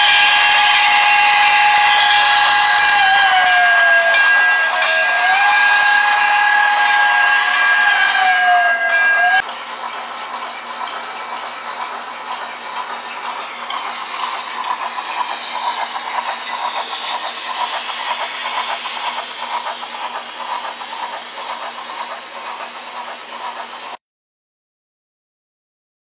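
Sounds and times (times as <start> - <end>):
model train wheels rattling: 9.4 - 24.0.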